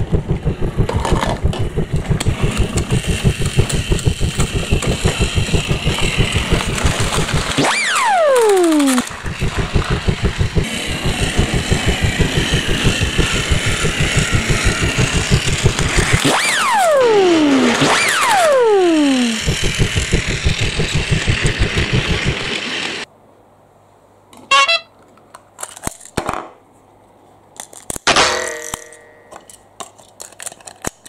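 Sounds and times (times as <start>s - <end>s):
falling whistle-like tone: 3.3s - 10.7s, 16.2s - 22.1s
toy trains clattering on track: 25.1s - 26.2s, 27.6s - 31.0s.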